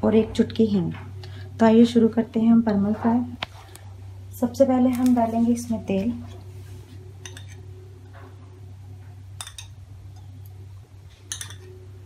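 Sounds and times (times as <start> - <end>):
steady low hum: 0.0 - 12.0
kitchenware clinking against pan: 7.2 - 7.6, 9.4 - 9.8, 11.3 - 11.8.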